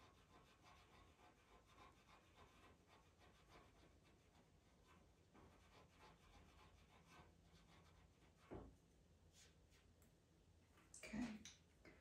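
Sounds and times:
pencil scratching on paper: 0:00.0 - 0:08.6.

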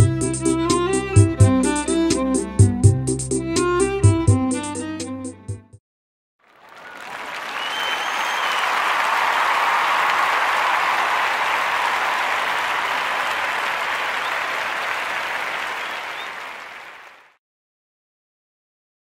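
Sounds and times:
crowd applauding: 0:06.4 - 0:17.4.

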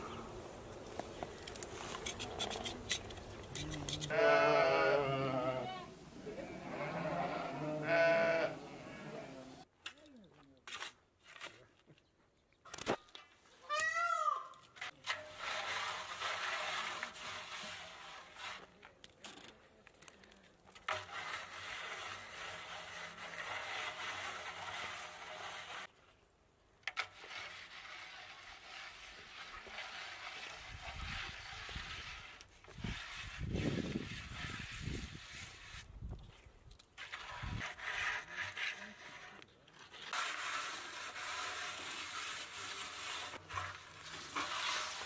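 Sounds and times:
hands smoothing wet mud: 0:00.0 - 0:04.1, 0:14.8 - 0:26.0, 0:27.0 - 0:45.0
shovel scraping dry soil: 0:00.0 - 0:04.5, 0:10.6 - 0:11.6, 0:14.7 - 0:25.9, 0:26.9 - 0:45.0.

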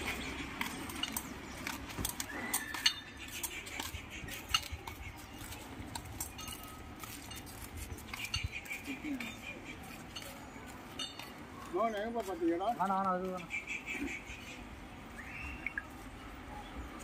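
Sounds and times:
metal chain clinking: 0:00.6 - 0:03.9, 0:05.4 - 0:07.7, 0:10.1 - 0:11.4.

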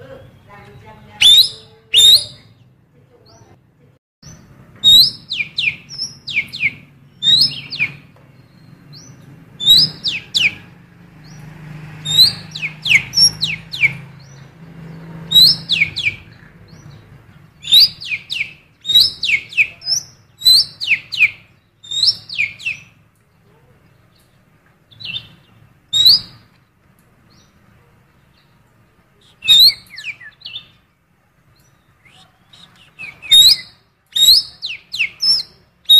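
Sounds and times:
bird whistling song: 0:00.2 - 0:02.6, 0:04.2 - 0:14.5, 0:15.2 - 0:23.0, 0:24.9 - 0:26.5, 0:29.2 - 0:30.8, 0:31.6 - 0:35.9.

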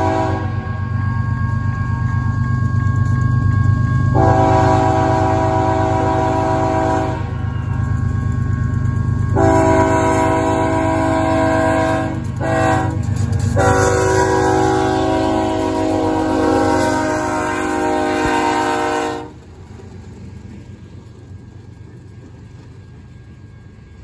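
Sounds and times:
train horn blasts: 0:00.0 - 0:02.2, 0:04.1 - 0:07.9, 0:09.2 - 0:19.4.

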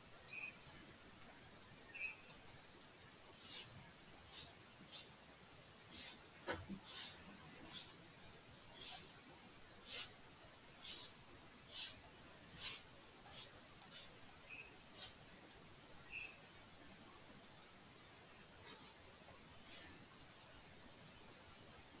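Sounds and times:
stylus scratching on tablet: 0:12.6 - 0:14.2.

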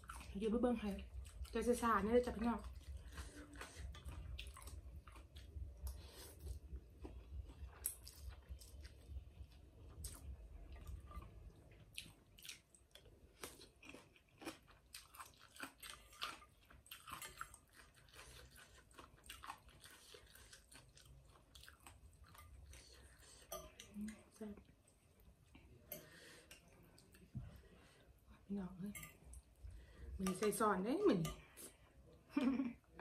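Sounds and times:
chewing and wet mouth smacks: 0:02.6 - 0:23.3.

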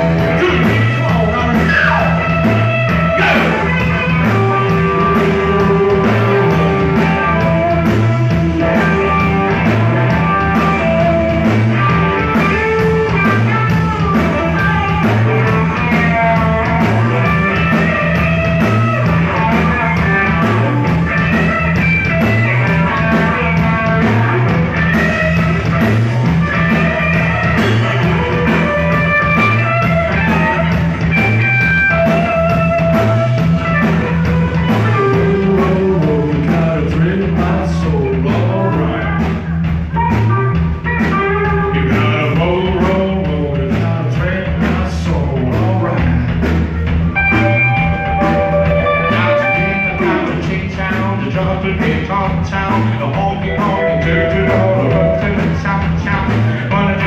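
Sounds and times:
bass guitar: 0:00.0 - 0:57.0
drum kit steady beat: 0:00.0 - 0:57.0
electric guitars: 0:00.0 - 0:57.0
person singing: 0:34.6 - 0:39.4, 0:41.6 - 0:46.4, 0:47.3 - 0:57.0.

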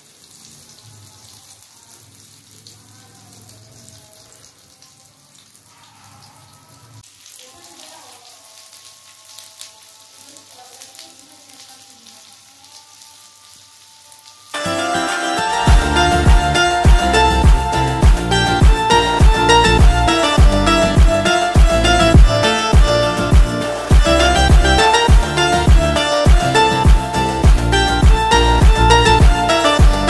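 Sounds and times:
oil sizzling on griddle: 0:00.0 - 0:15.7.

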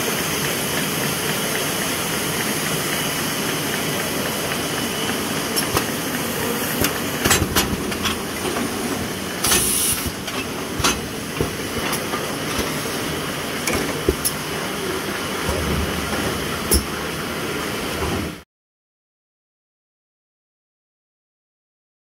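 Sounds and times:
machine clacks: 0:00.0 - 0:14.6
steady machine noise: 0:00.0 - 0:18.4.

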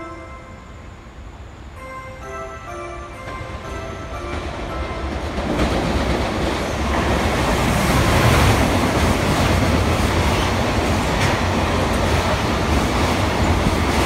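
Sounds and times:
electric locomotive passing: 0:00.0 - 0:14.0.

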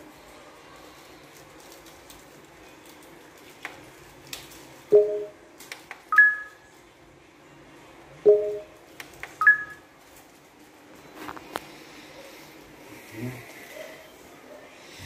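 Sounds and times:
tv two-tone menu beeps: 0:04.9 - 0:05.4, 0:06.1 - 0:06.6, 0:08.3 - 0:08.7, 0:09.4 - 0:09.8.

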